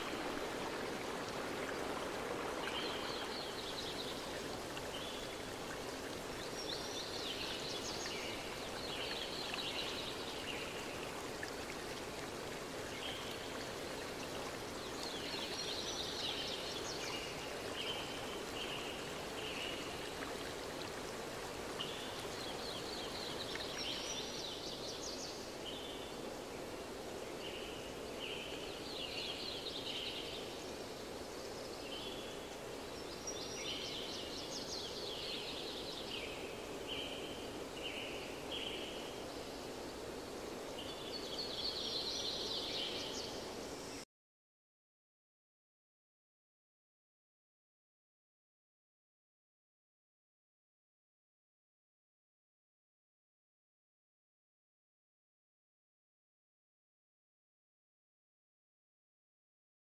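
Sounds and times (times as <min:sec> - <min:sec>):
rushing stream water: 0:00.0 - 0:44.0.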